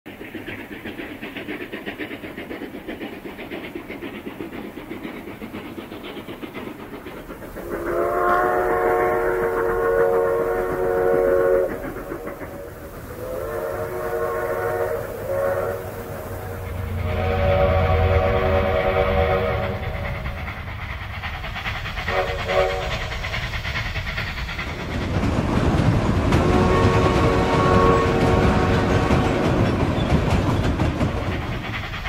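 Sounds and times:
steam locomotive chuffing: 0.1s - 32.0s
steam whistle blowing: 7.6s - 11.8s, 13.1s - 20.1s, 22.1s - 23.0s, 26.4s - 29.4s.

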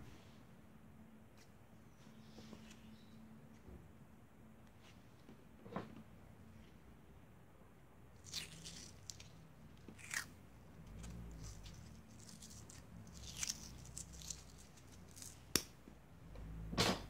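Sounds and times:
adhesive tape ripping: 8.2s - 15.7s.

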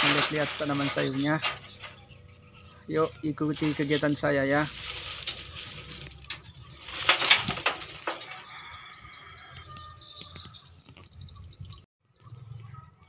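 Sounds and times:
dry leaves rustling and crackling: 0.0s - 2.2s, 2.9s - 9.2s.

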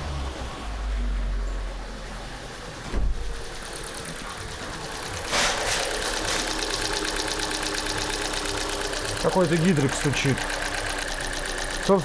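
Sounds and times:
car engine running: 0.0s - 12.0s
rapid even ticking: 6.0s - 12.0s.

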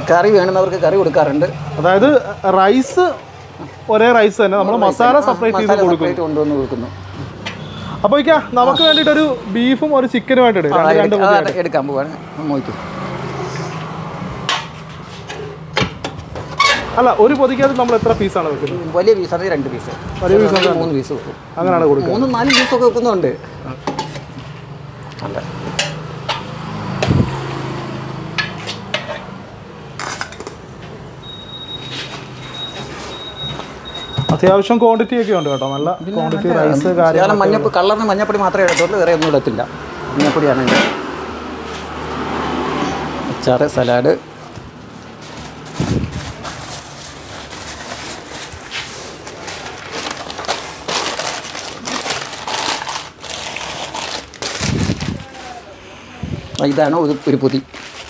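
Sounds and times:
plastic bag and newspaper crinkling: 44.7s - 55.6s, 56.6s - 58.0s.

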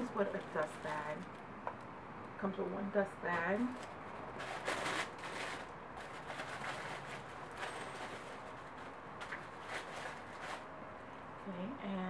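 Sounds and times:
tissue paper rustling: 0.0s - 1.2s, 3.4s - 10.7s.

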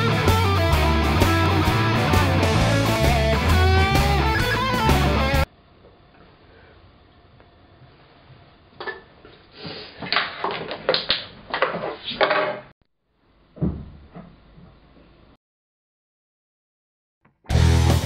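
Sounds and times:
thump on wooden table: 13.6s - 14.0s.

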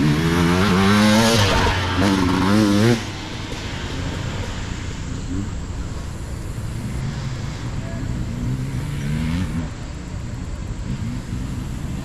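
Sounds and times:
people's voices: 3.6s - 11.3s.

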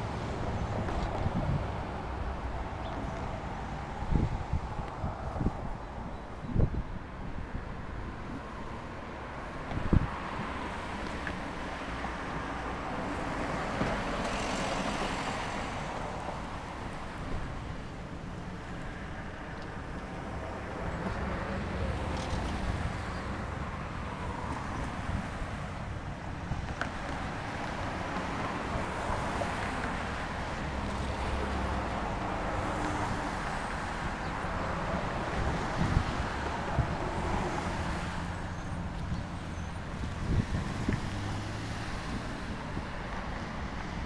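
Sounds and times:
road traffic passing: 0.0s - 44.0s
wind on microphone: 0.4s - 10.6s, 34.1s - 44.0s.

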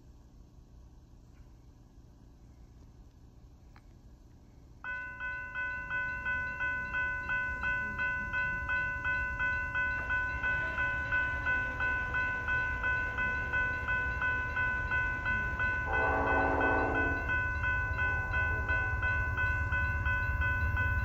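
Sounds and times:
crossing warning bell ringing: 4.8s - 21.0s.

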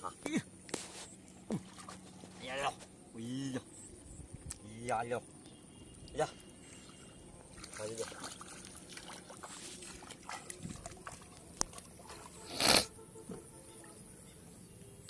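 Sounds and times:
person wading through water: 1.3s - 2.4s, 6.4s - 12.5s.

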